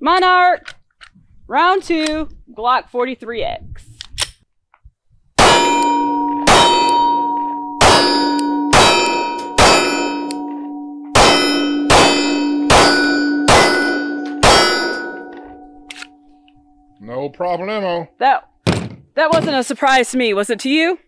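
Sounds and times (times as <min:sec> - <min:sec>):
bullets ringing on steel target: 0:05.4 - 0:15.9.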